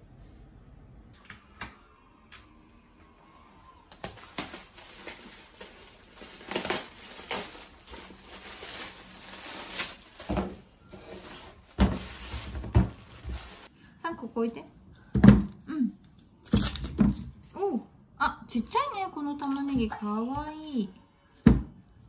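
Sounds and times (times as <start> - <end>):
plastic bag crinkling: 4.2 - 10.6, 11.5 - 13.7.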